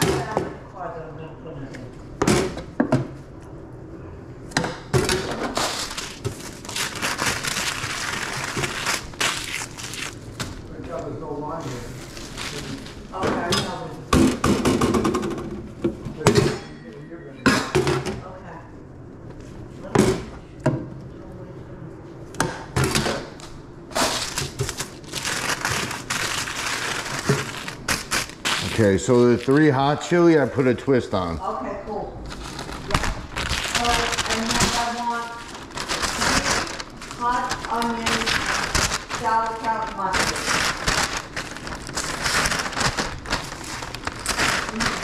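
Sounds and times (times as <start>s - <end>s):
paper wrap crinkling: 5.3s - 13.2s, 23.9s - 30.0s, 32.2s - 45.0s.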